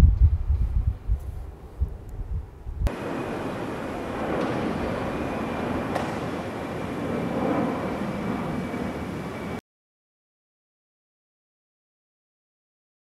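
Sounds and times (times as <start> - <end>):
faint high whine: 1.2 - 9.6
engine running steadily: 2.8 - 9.6.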